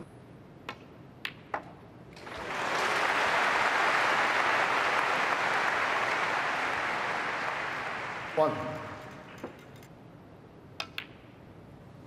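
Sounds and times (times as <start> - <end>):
arena crowd applause: 2.2 - 9.4.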